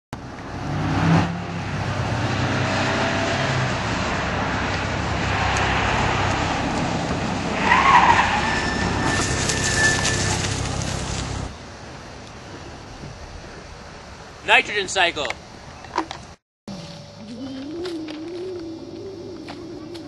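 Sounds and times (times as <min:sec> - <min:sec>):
tyre noise: 0:04.1 - 0:11.5
short squeal: 0:07.6 - 0:10.8.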